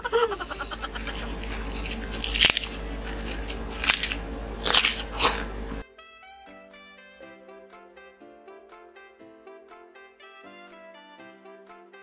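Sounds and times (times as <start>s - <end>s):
steady low hum: 0.0s - 5.8s
crisp crunching and chewing: 0.6s - 5.8s
music: 5.8s - 12.0s.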